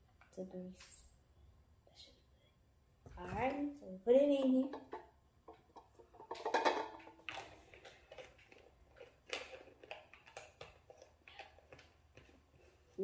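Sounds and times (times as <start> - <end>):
plastic bottle clicks and crackles: 4.4 - 12.4
plastic bottle rustle: 5.7 - 13.0.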